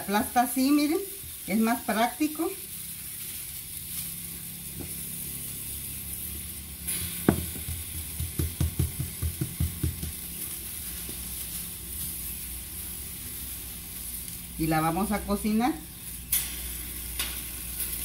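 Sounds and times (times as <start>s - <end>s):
cactus paddle sizzling in pan: 0.0s - 18.0s
hands patting dough: 7.2s - 11.3s.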